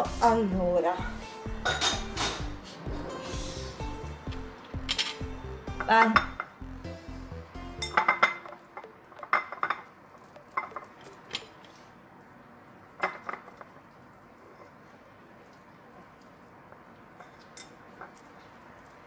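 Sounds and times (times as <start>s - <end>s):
clinks against ceramic plate: 1.6s - 2.4s, 7.8s - 11.5s.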